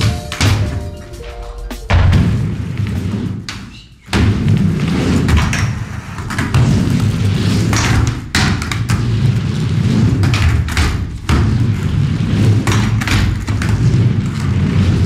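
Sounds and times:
skateboard wheels rumbling: 2.0 - 3.5, 4.1 - 15.0
skateboard thuds and clacks: 2.0 - 15.0.

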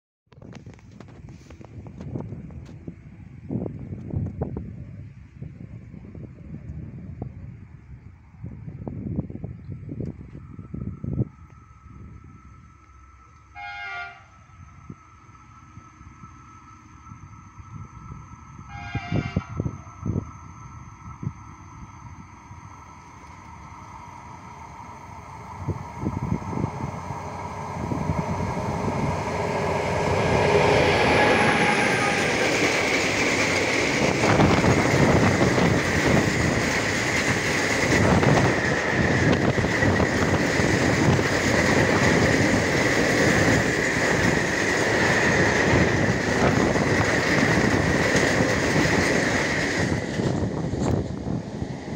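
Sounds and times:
train wheel rumble: 0.3 - 51.9
locomotive passing: 7.2 - 51.9
high wheel squeal: 10.3 - 36.8
clickety-clack over rail joints: 30.2 - 51.4.

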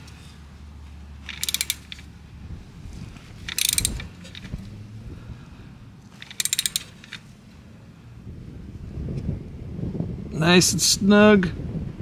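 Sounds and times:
socket ratchet clicking: 1.2 - 2.1, 3.5 - 4.5, 6.2 - 7.2.

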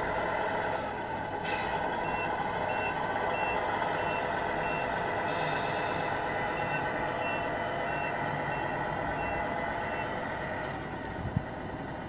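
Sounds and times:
diesel truck engine running: 0.0 - 12.0
reversing beeps: 2.0 - 4.9, 6.5 - 10.2.

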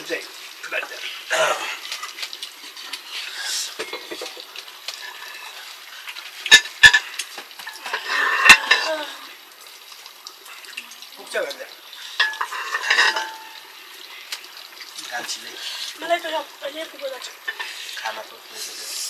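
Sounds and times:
metal dishes clinking and scraping: 4.9 - 5.6, 6.5 - 9.0, 12.2 - 13.6, 17.4 - 17.8.

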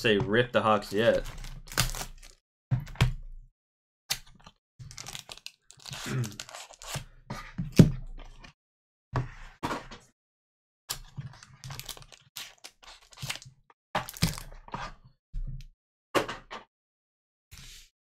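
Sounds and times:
card pack crackling and rustling: 0.8 - 2.4, 4.8 - 7.0, 11.4 - 13.4.

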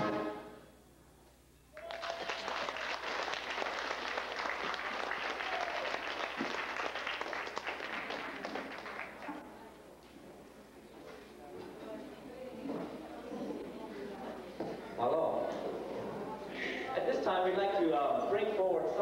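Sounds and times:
brass band chord: 0.0 - 0.7
audience applauding: 1.7 - 9.4.

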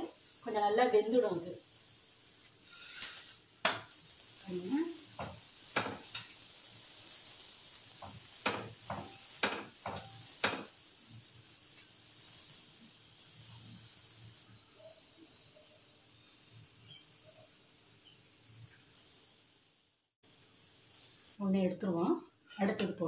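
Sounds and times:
flatbread sizzling in oil: 0.0 - 23.0
spatula tapping and scraping pan: 2.7 - 4.0, 5.1 - 6.3, 7.9 - 10.8.

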